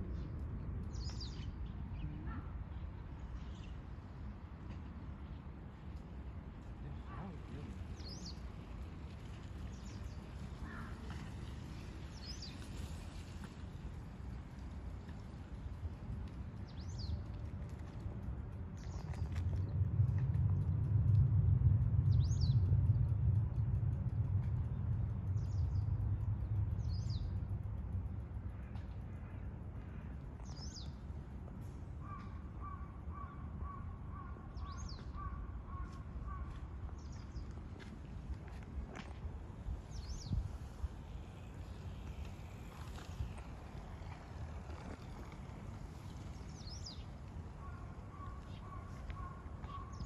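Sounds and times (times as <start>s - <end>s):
steady low rumble: 0.0s - 50.0s
short evenly spaced bird calls: 7.2s - 13.4s, 32.0s - 37.7s, 39.8s - 50.0s
distant crow call: 32.0s - 36.6s.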